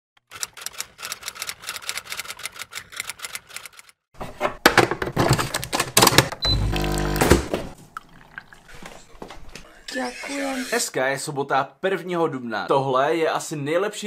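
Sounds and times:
coffee machine pump humming: 6.4s - 7.7s.

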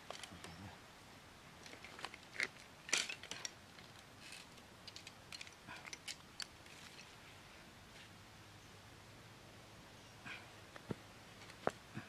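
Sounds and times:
bamboo sticks clicking and tapping: 1.6s - 7.0s
wire-mesh basket rattling: 1.6s - 7.0s.

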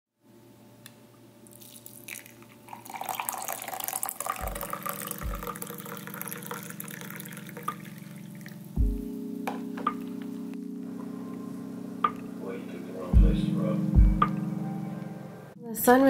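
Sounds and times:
low music: 1.4s - 16.0s
coffee pouring into mug: 1.5s - 8.7s.

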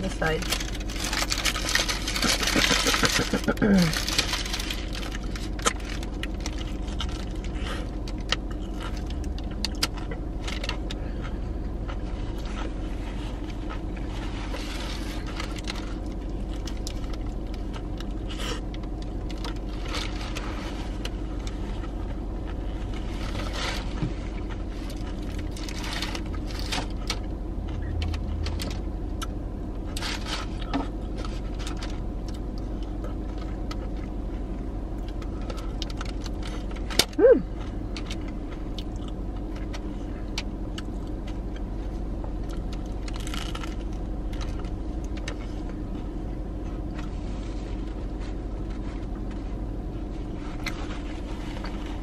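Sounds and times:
low hum inside car: 0.0s - 52.0s
paper wrapper crinkling: 0.4s - 8.2s, 42.7s - 44.6s
person chewing: 0.8s - 49.5s.

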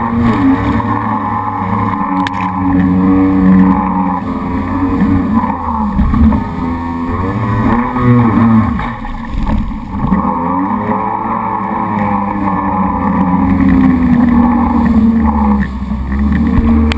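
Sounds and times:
jet ski engine: 0.0s - 16.9s
wind on microphone: 4.9s - 10.2s.

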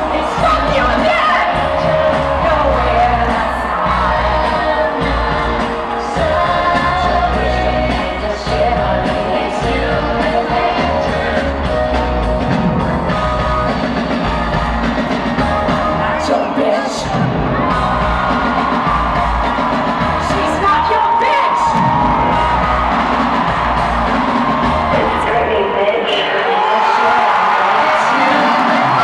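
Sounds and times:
woman singing: 0.0s - 11.7s, 15.6s - 18.5s
crowd shouting: 0.0s - 29.0s
live band playing: 0.0s - 29.0s.

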